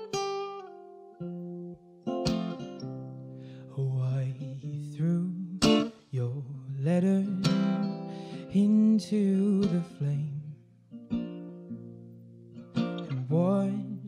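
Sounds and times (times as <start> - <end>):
plucked acoustic guitar: 0.0 - 14.0
man singing: 3.7 - 10.6, 13.0 - 14.0.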